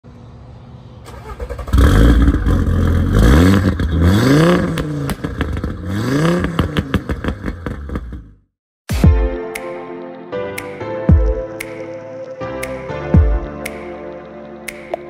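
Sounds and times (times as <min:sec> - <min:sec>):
car engine accelerating hard: 0:01.3 - 0:08.2.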